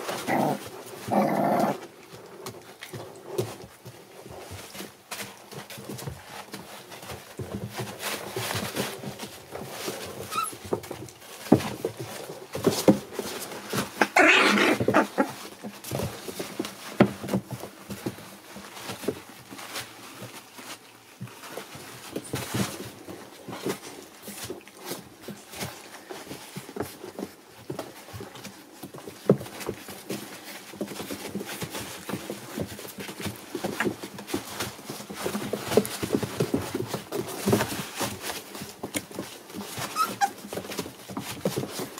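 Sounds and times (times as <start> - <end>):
puppies scuffling on plastic pads: 0.0 - 41.9
puppy whimpers: 10.3 - 10.6, 14.0 - 15.4, 39.8 - 40.4.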